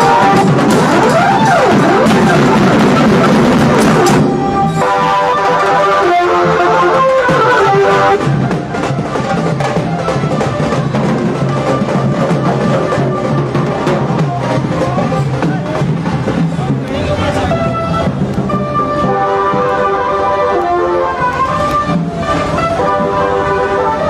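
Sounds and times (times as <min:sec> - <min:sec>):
tune of held notes: 0:00.0 - 0:09.0
drums beating: 0:00.0 - 0:24.0.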